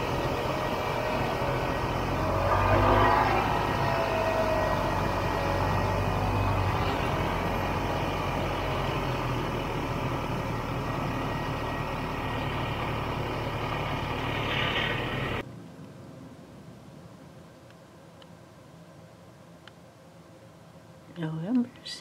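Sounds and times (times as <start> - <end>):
snowmobile engine at low speed: 0.0 - 15.4.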